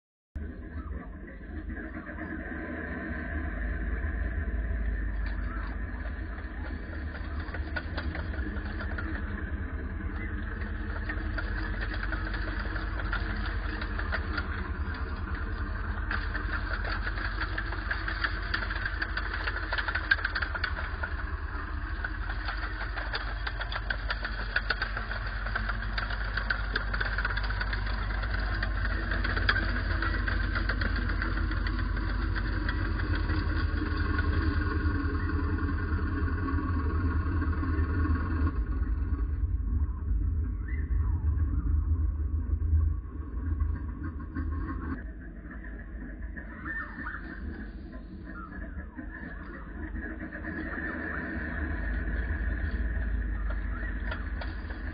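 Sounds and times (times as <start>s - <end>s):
tracked vehicle engine running: 0.5s - 54.9s
tracks clattering: 4.8s - 39.3s, 46.2s - 54.9s.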